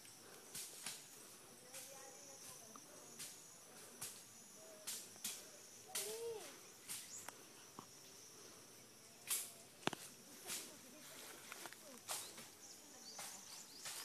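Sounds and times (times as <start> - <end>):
insects buzzing: 0.0 - 14.0
footsteps on grass and dry leaves: 9.3 - 14.0.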